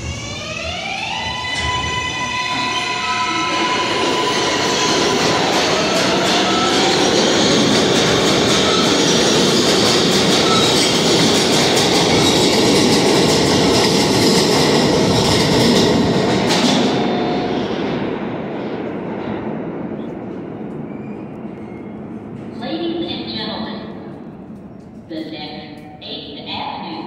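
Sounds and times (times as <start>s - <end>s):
subway train wheels rumbling: 0.0s - 27.0s.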